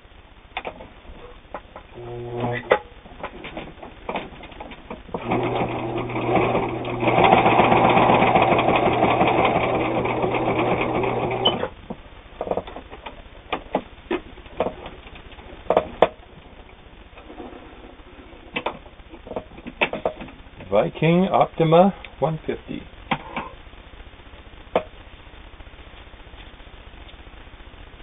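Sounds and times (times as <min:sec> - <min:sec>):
sewing machine stitching: 0:02.0 - 0:11.7.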